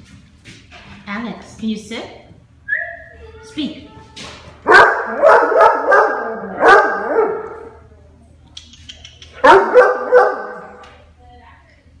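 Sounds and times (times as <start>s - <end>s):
dog barking: 4.7s - 7.8s, 9.4s - 10.8s.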